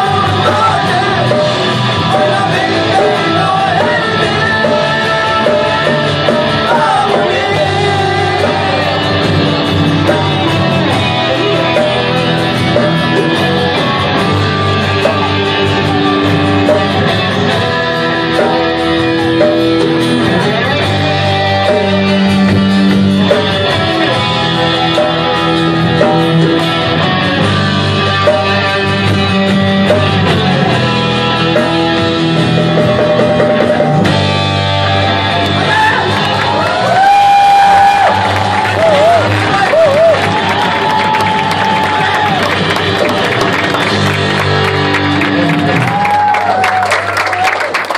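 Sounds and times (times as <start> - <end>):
person singing: 0.0 - 31.7
drum kit: 0.0 - 47.9
electric guitar: 0.0 - 47.9.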